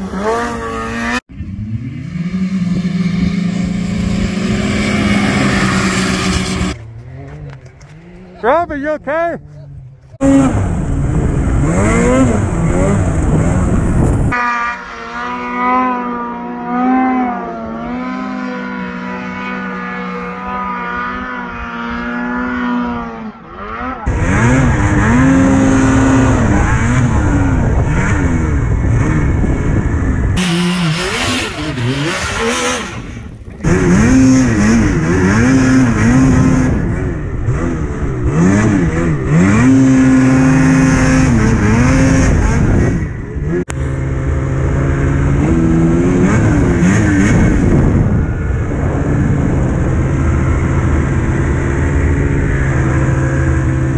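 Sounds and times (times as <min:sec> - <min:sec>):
snowmobile engines revving: 0:00.0 - 0:53.9
loud rushing noise: 0:02.0 - 0:06.8.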